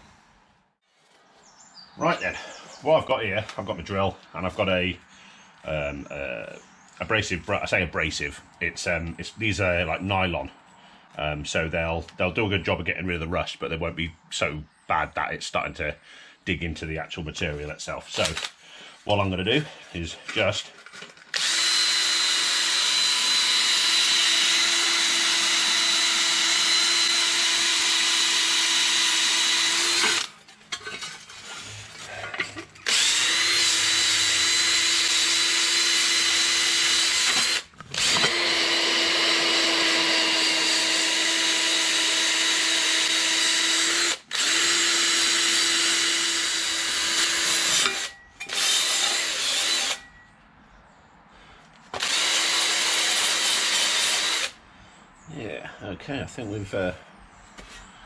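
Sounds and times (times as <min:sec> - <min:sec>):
drill with abrasive wheel scrubbing metal: 0:18.2 - 0:18.5, 0:21.3 - 0:50.2, 0:51.9 - 0:54.6.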